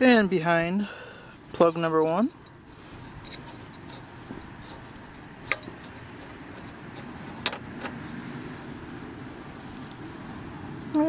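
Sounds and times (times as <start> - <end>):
small metallic clicks: 2.4 - 8.0.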